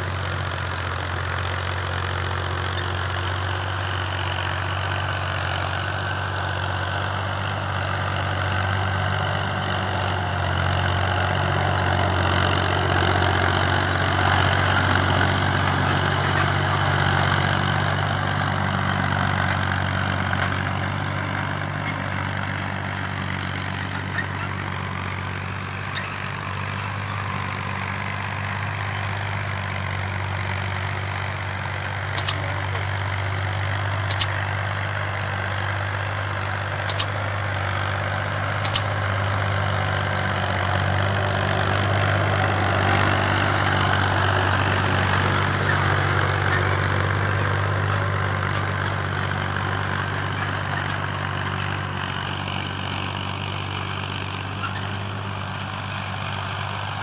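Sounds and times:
tractor engine running: 0.0 - 57.0
short sharp clicks: 32.2 - 32.4, 34.1 - 34.4, 36.9 - 37.1, 38.6 - 38.9.

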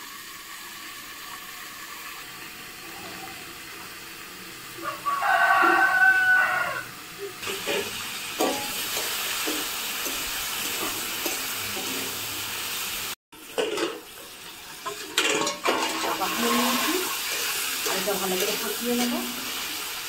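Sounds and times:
potatoes sizzling in hot oil: 0.0 - 20.0
rooster crowing: 4.8 - 7.0
metal spatula scraping pan: 7.4 - 12.4, 13.5 - 14.1, 14.7 - 19.8.

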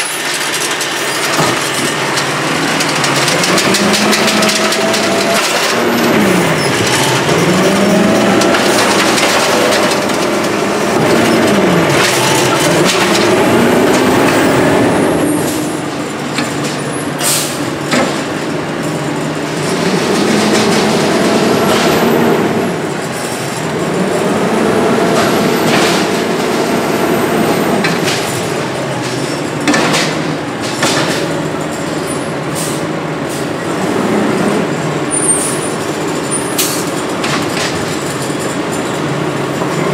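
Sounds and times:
garbage truck diesel engine revving: 0.0 - 39.9
sharp knocks of carts and arm: 0.3 - 22.6, 27.7 - 32.0.

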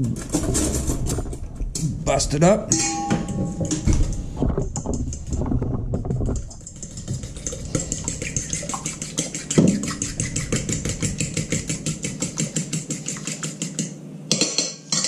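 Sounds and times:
bowl knocking: 2.7 - 12.7
fork beating egg in metal bowl: 6.4 - 13.9.

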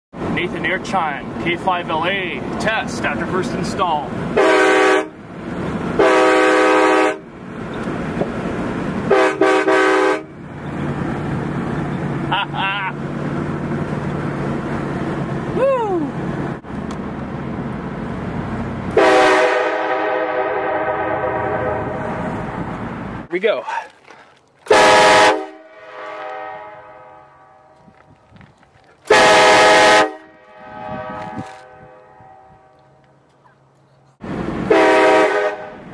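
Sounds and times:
vehicle road noise: 0.1 - 35.9
air horn chord blasts: 4.4 - 5.2, 6.0 - 7.2, 9.1 - 10.3, 19.0 - 22.2, 24.7 - 27.8, 29.1 - 32.8, 34.7 - 35.8.

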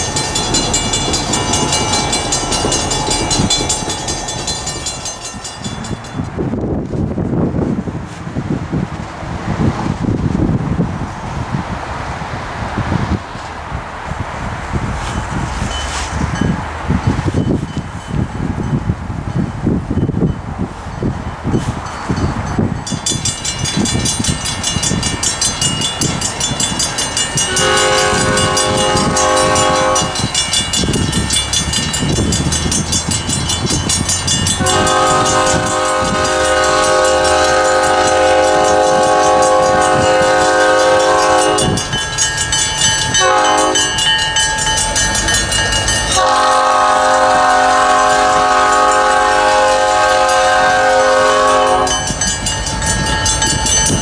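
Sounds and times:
locomotive engine rumble: 0.0 - 54.0
locomotive air horn: 27.4 - 30.5, 34.5 - 41.9, 43.1 - 44.1, 46.1 - 52.2.

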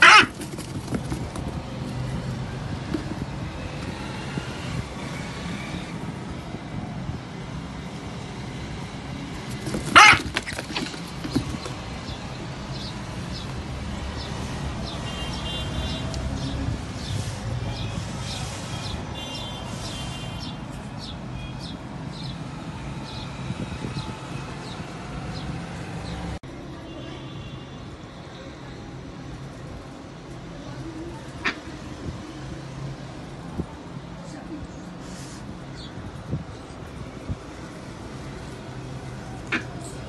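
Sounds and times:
loud squawk: 0.0 - 0.4, 9.9 - 10.5.

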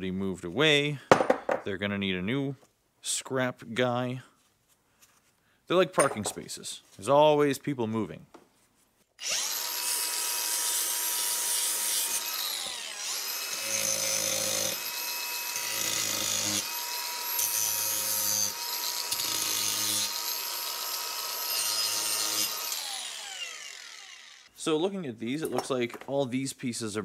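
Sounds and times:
power tool motor whine: 9.2 - 24.5.

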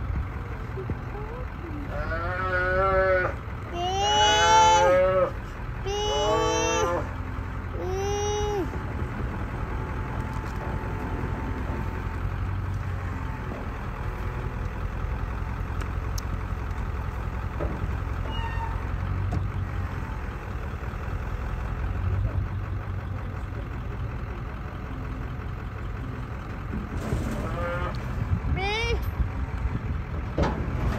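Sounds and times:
truck engine idling: 0.0 - 30.9.

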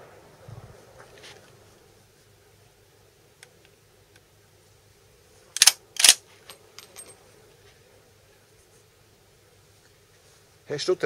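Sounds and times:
rifle bolt metallic clacks: 5.6 - 7.2.

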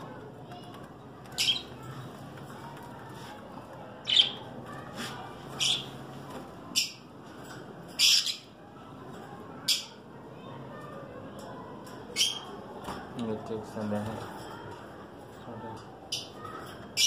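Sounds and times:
parrots squawking: 5.6 - 6.0, 7.9 - 8.5.

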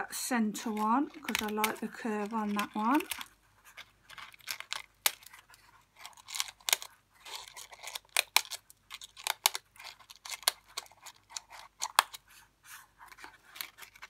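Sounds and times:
scissors snipping paper: 0.6 - 3.3, 4.1 - 12.2.

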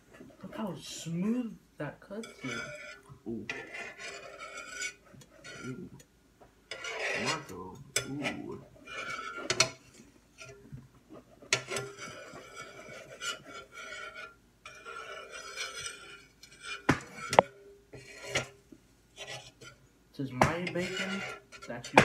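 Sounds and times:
metal utensils clinking on dishes: 2.2 - 6.1, 6.7 - 9.8.

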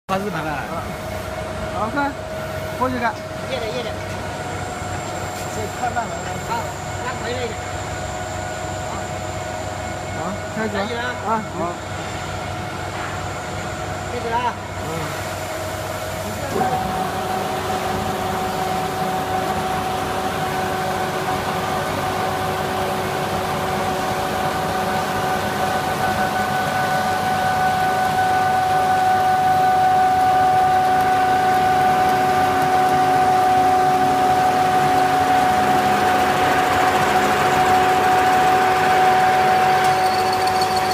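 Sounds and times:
drilling machine whining and grinding: 14.8 - 40.9.

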